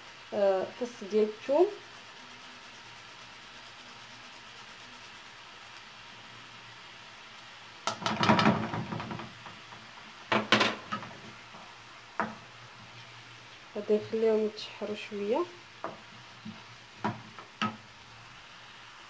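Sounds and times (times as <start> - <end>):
utensils knocking against pan: 7.9 - 11.3, 12.2 - 12.4, 17.0 - 17.8.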